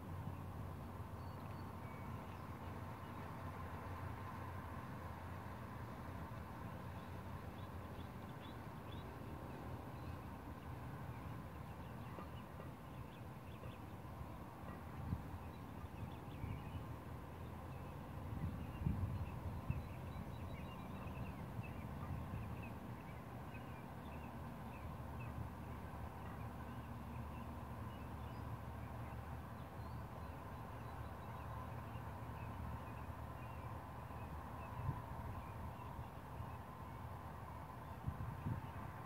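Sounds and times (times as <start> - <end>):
wind rumble on microphone: 18.1 - 22.6, 37.8 - 39.0.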